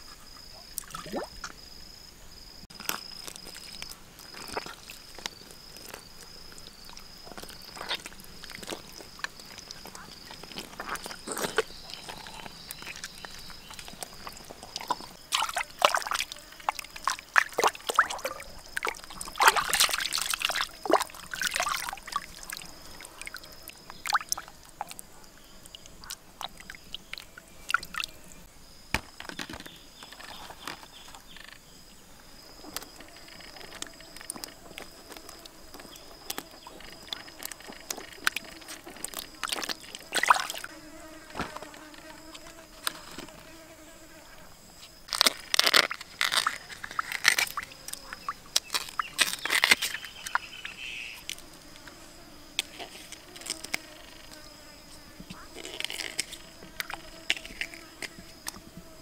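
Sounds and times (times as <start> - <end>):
fly buzzing: 5.9 - 24.6, 32.9 - 44.9, 46.0 - 59.0.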